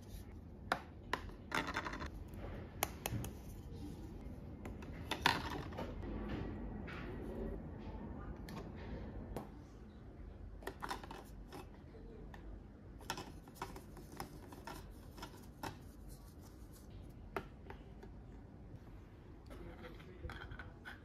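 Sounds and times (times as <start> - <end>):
plastic toys clicking and knocking: 10.6 - 11.8.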